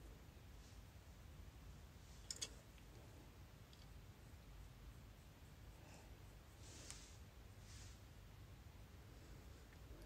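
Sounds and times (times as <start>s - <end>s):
faint soft rustles: 0.5s - 8.4s.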